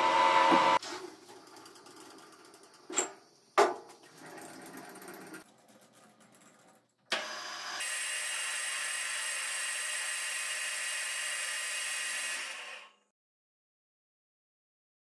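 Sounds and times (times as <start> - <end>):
lathe motor and gear whine: 0.0 - 0.8, 7.1 - 12.9.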